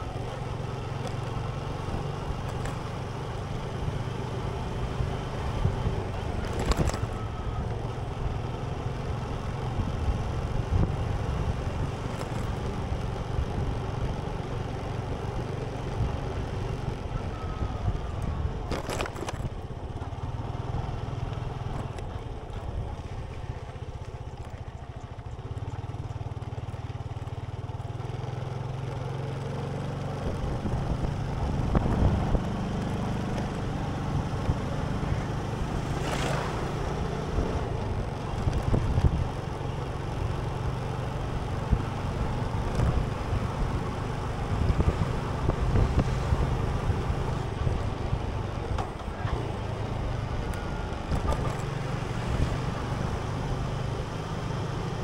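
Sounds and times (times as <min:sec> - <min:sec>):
vehicle engine and road noise: 0:00.0 - 0:55.0.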